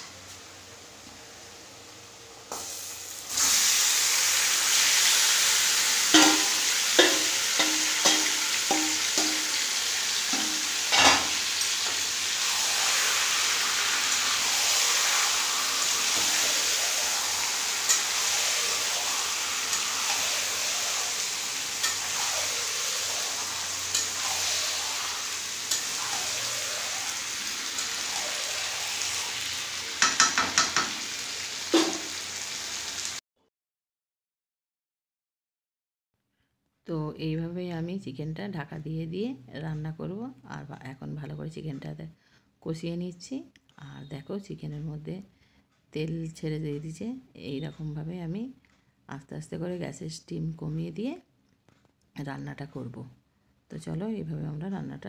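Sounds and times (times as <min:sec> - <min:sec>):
chicken sizzling in hot oil: 0:00.5 - 0:33.2
metal spatula scraping a pan: 0:06.0 - 0:13.6, 0:14.5 - 0:29.4.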